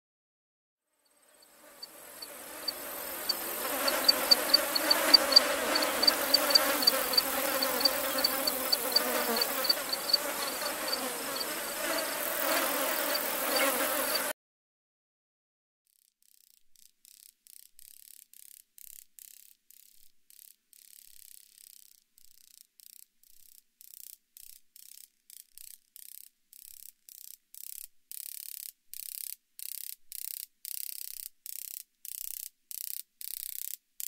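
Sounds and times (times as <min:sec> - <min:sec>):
grasshopper wings crackling: 0:01.6 - 0:14.3.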